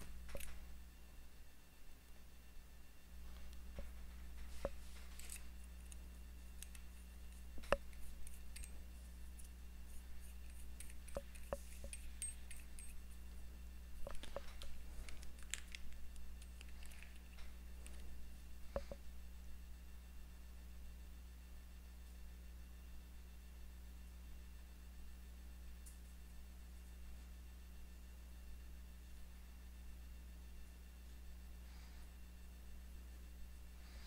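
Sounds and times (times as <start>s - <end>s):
steady low hum: 0.0s - 34.0s
soft rustles: 3.2s - 6.0s
small metal parts clicking: 5.1s - 6.0s, 6.6s - 9.6s, 10.2s - 13.2s, 14.1s - 18.0s.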